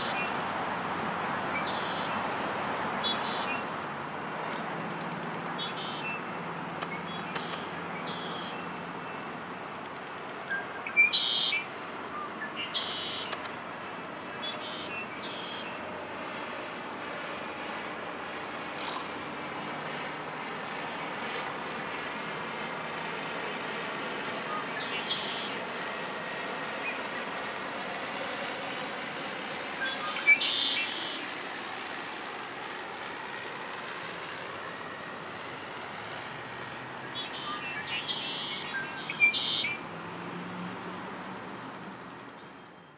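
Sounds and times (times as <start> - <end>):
blackbird singing: 10.5 - 13.4, 24.5 - 25.6, 29.8 - 31.2, 37.0 - 39.8.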